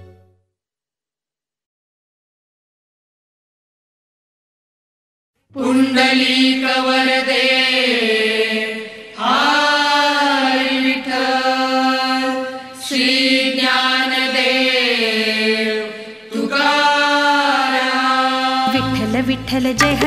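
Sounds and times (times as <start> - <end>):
person singing devotional chant: 5.5 - 20.0.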